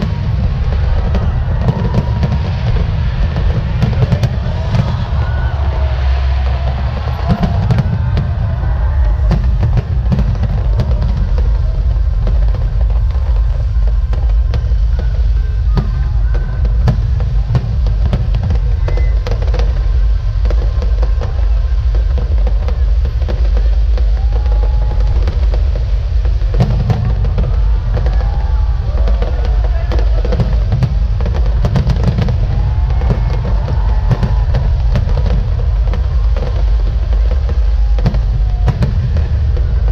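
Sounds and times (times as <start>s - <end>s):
deep rumble: 0.0s - 39.9s
firework shells bursting: 0.0s - 39.9s
sharp firework bangs and crackles: 0.0s - 39.9s.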